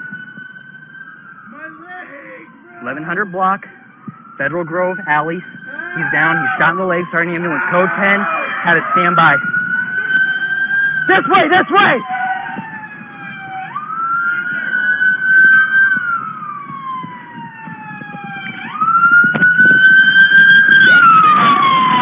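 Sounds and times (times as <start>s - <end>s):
emergency vehicle siren wailing: 0.0s - 22.0s.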